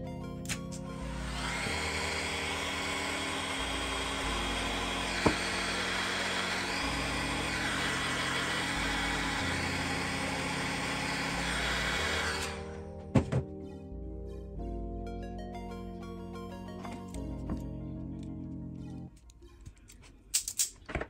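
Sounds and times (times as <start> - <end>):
background music: 0.0 - 21.0
electric tool motor running: 0.8 - 13.0.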